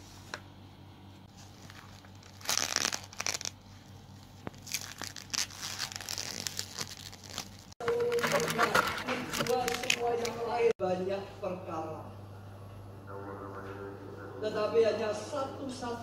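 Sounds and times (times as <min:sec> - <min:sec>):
cling film crinkling and tearing: 0:01.3 - 0:03.6, 0:04.2 - 0:10.5.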